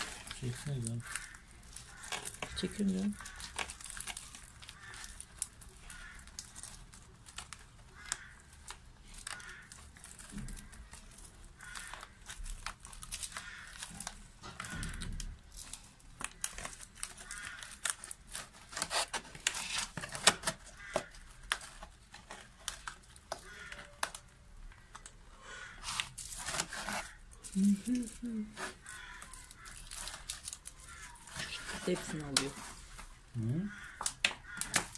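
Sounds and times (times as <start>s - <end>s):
plastic bottle crinkling: 0.0s - 25.2s, 25.8s - 34.9s.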